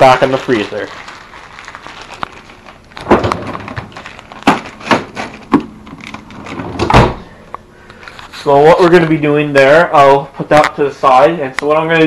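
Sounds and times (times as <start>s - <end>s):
freezer drawer clacks and knocks: 3.0s - 5.7s.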